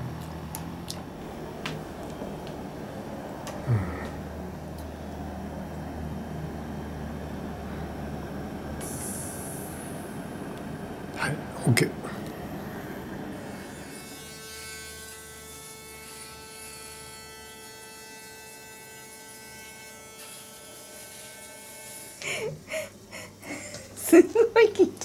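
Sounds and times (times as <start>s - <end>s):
electric shaver humming: 12.0s - 24.1s.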